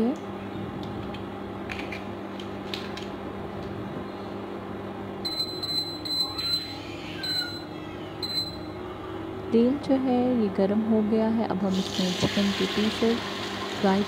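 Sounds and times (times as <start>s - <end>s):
cooktop electrical hum: 0.0s - 14.0s
short high electronic beeps: 5.2s - 8.7s.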